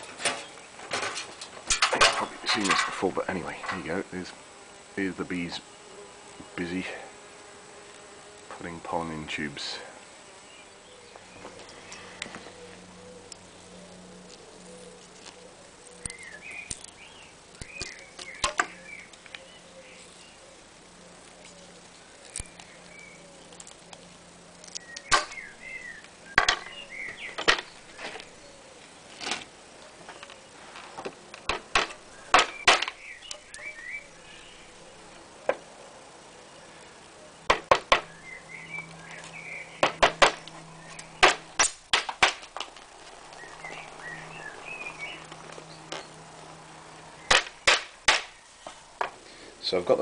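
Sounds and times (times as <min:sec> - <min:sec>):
hammer knocking wooden dowels: 0:37.5 - 0:38.1.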